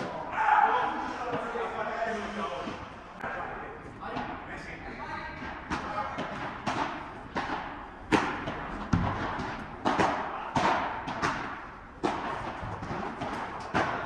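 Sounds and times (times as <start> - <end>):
ball bouncing: 5.4 - 14.0
paddle striking ball: 5.4 - 14.0.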